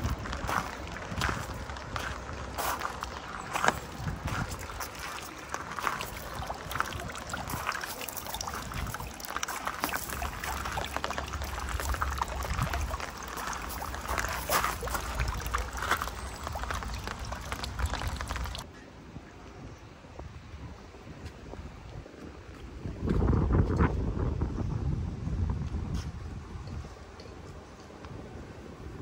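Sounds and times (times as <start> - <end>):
rain falling and splashing: 0.0 - 18.7
wind rumbling on microphone: 0.0 - 29.0.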